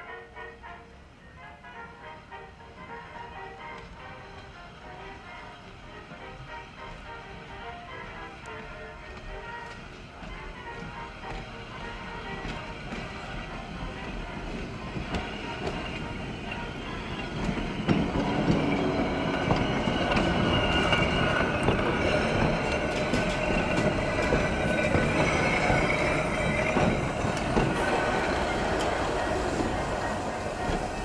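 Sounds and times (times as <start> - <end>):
streetcar wheels clicking over rail joints: 8.5 - 31.0
wheels squealing on curved track: 12.4 - 31.0.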